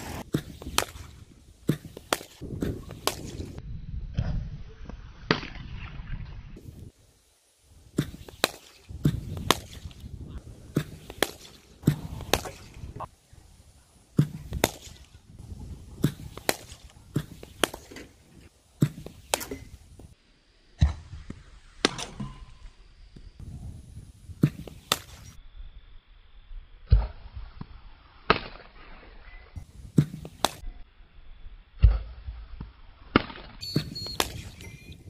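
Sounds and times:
cricket bat hitting balls: 0:08.0 - 0:09.8, 0:10.7 - 0:12.7, 0:14.2 - 0:15.0, 0:16.0 - 0:18.1, 0:30.0 - 0:30.6, 0:33.2 - 0:34.6.

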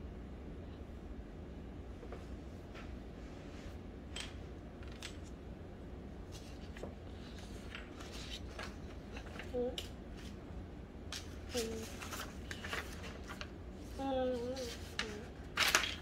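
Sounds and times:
low room hum: 0:00.0 - 0:16.0
paper rustling: 0:06.3 - 0:10.4, 0:11.1 - 0:16.0.

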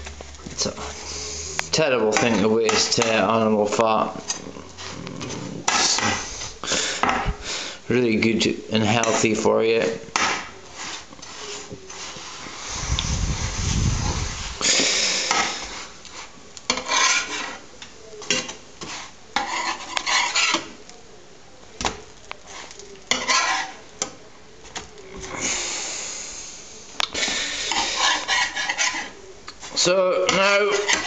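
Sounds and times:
spatula scraping frying pan: 0:00.0 - 0:07.4, 0:08.3 - 0:20.8, 0:22.4 - 0:24.2, 0:27.2 - 0:31.0.

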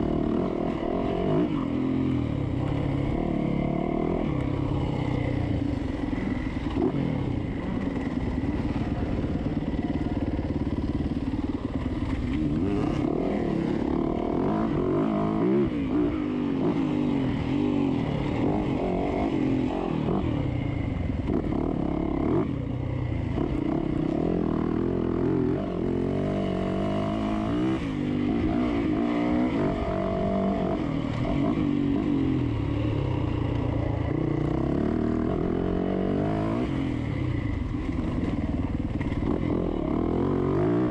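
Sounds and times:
dirt bike engine revving: 0:00.0 - 0:20.4.

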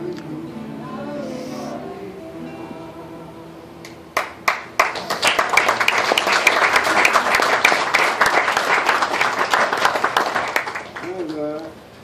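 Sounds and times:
crowd applauding: 0:04.2 - 0:11.6.

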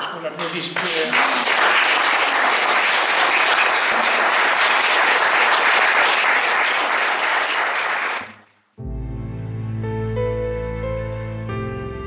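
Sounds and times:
audience applauding: 0:00.3 - 0:08.6.

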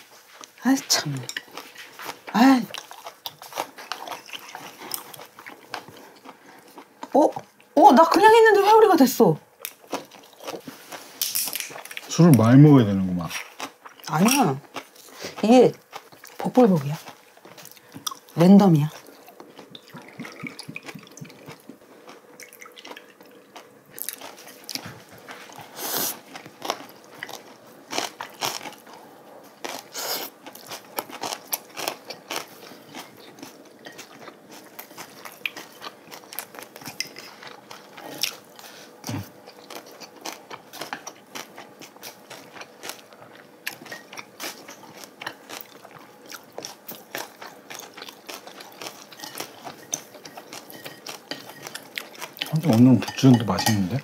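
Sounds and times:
people chewing and biting: 0:00.4 - 0:07.7, 0:09.6 - 0:12.6, 0:13.2 - 0:54.0
chopsticks clicking on plates: 0:48.9 - 0:54.0.

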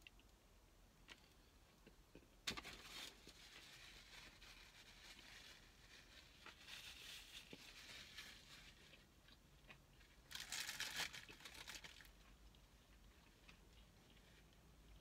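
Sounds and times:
paper wrapper crinkling: 0:02.5 - 0:08.9, 0:10.3 - 0:12.2.

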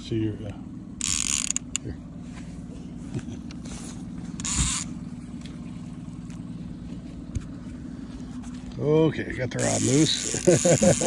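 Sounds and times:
outboard motor running: 0:00.0 - 0:11.0.

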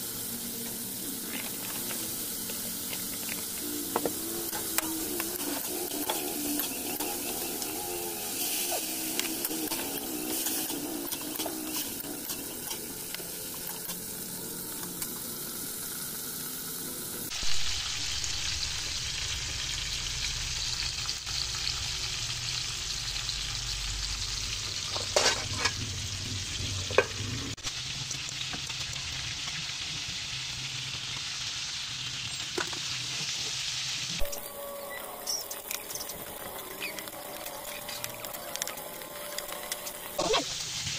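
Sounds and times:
vegetables sizzling in hot oil: 0:00.0 - 0:40.9
metal spatula scraping wok: 0:04.2 - 0:13.1, 0:24.8 - 0:26.0.

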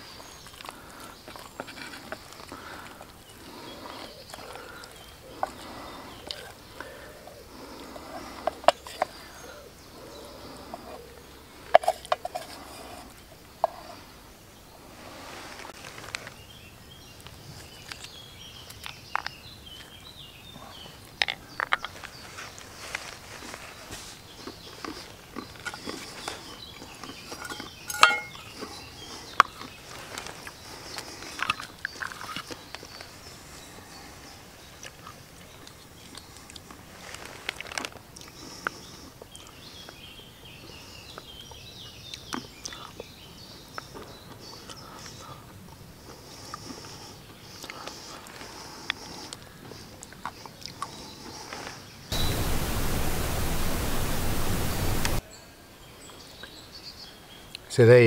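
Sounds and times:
birds singing: 0:00.0 - 0:37.2, 0:38.2 - 0:58.0
rustling: 0:21.6 - 0:28.8, 0:36.8 - 0:38.0
birdsong whistled notes: 0:52.0 - 0:55.2.

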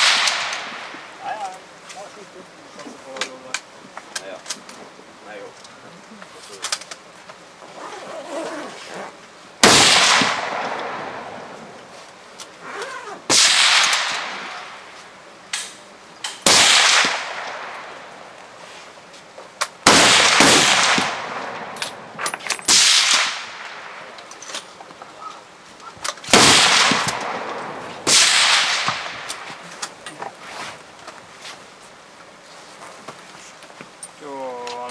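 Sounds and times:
rifle shots with ringing echo: 0:00.0 - 0:01.0, 0:09.6 - 0:11.5, 0:13.3 - 0:14.8, 0:16.4 - 0:18.0, 0:19.8 - 0:22.1, 0:22.7 - 0:24.1, 0:26.3 - 0:29.5.

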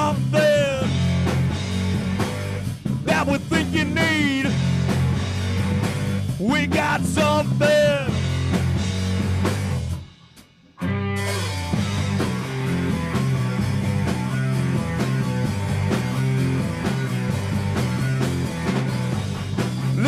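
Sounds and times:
bass guitar: 0:00.0 - 0:20.0
drum kit: 0:00.0 - 0:20.0
electric guitar: 0:10.8 - 0:20.0.

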